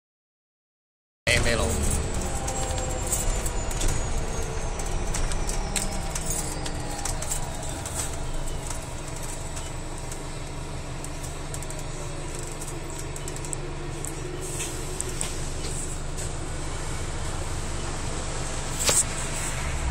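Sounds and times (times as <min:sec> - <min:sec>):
bus drive rumble: 0:01.3 - 0:19.9.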